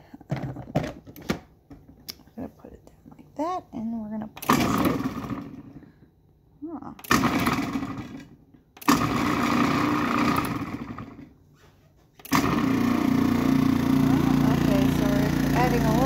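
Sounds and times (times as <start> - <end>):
food processor pulsing: 4.4 - 5.8, 7.0 - 11.4, 12.2 - 16.0.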